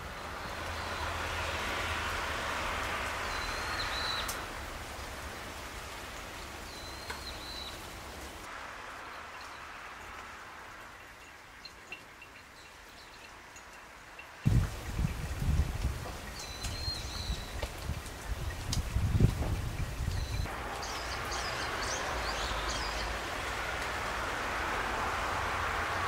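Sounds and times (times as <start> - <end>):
steady rushing noise: 8.2 - 11.6, 20.4 - 26.0.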